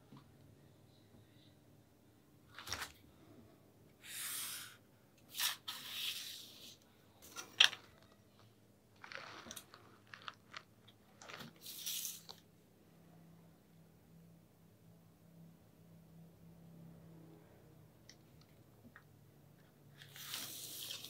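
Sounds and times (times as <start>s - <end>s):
marker scratching on paper: 4.1s - 6.8s.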